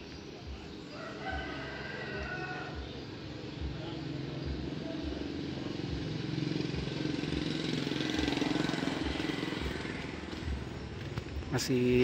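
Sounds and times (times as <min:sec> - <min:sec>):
diesel engine idling: 0:02.8 - 0:12.0.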